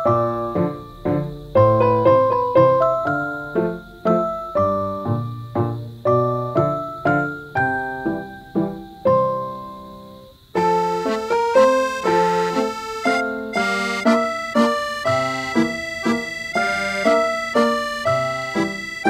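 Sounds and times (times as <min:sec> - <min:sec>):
light instrumental music: 0:10.6 - 0:19.0
plucked keyboard notes: 0:10.6 - 0:19.0.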